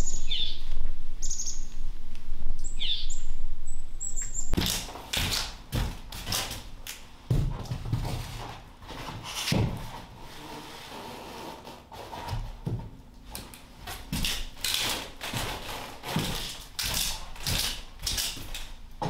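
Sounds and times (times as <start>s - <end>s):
wooden floorboards knocking and scraping: 4.6s - 6.7s, 7.3s - 10.1s, 12.2s - 13.0s.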